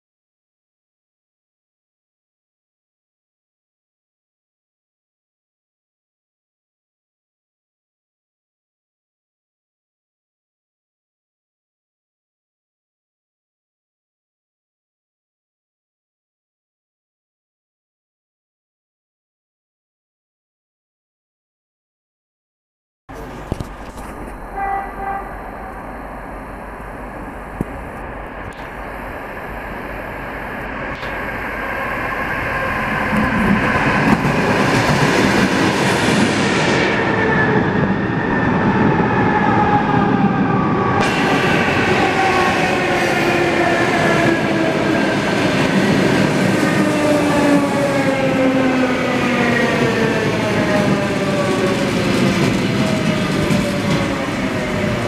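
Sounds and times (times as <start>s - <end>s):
train wheels rumbling on rails: 23.1s - 55.0s.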